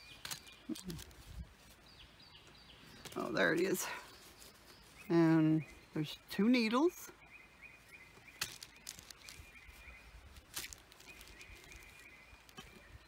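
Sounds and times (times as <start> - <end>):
paper and canvas rustling: 8.4 - 12.8.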